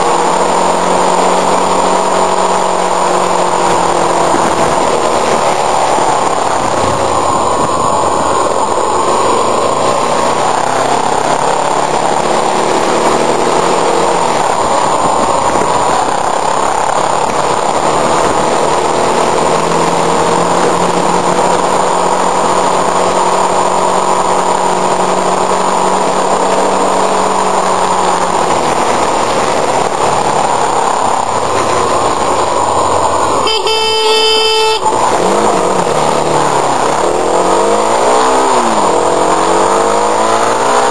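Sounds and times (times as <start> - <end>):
motorcycle engine running: 0.0 - 40.9
wind rush: 2.7 - 12.1
vehicle horn: 33.4 - 35.4.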